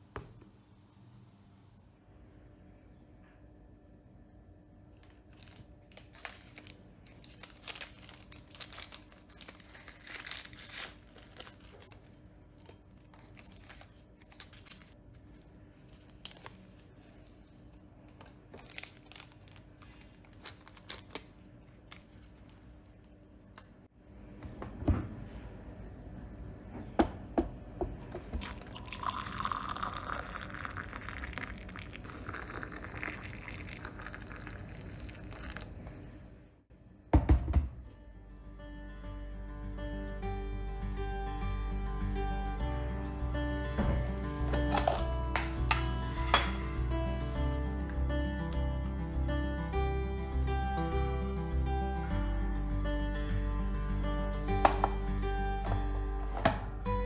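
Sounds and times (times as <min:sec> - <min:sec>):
small crackles and rustles: 0:05.0 - 0:23.2
tea sachets torn and crinkled: 0:05.1 - 0:15.0, 0:15.8 - 0:17.1, 0:18.1 - 0:23.7, 0:28.4 - 0:35.7
water pouring into mugs: 0:28.4 - 0:35.7.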